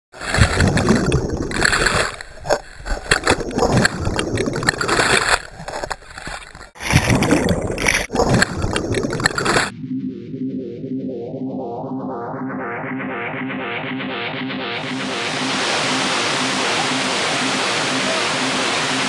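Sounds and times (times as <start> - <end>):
churning splashing water: 0.2 - 9.7.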